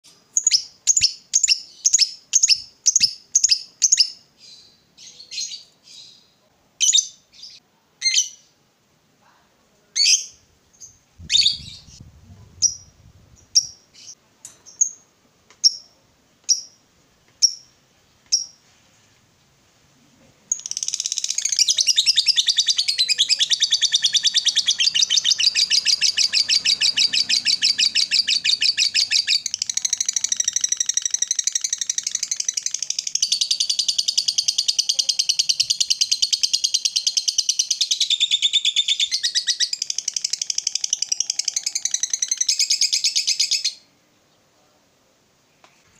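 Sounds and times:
lovebird chirping: 0.3s - 8.6s, 9.9s - 15.0s, 15.6s - 16.8s, 17.4s - 18.6s, 20.5s - 44.5s
lovebird chattering trill: 20.5s - 43.8s.

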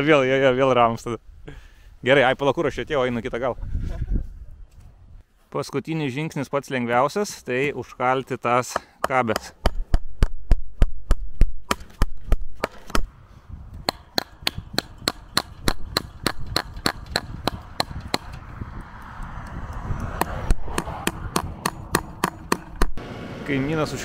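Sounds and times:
hammering staples into wood: 13.8s - 18.4s, 20.2s - 22.9s.

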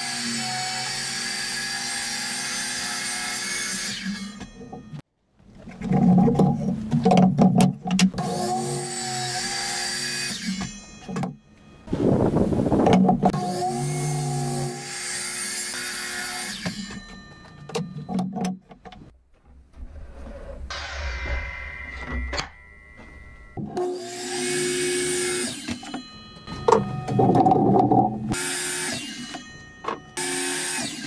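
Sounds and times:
miter saw cutting wood: 8.2s - 10.7s, 13.3s - 17.0s, 23.6s - 26.0s, 28.0s - 29.5s, 30.2s - 31.0s.

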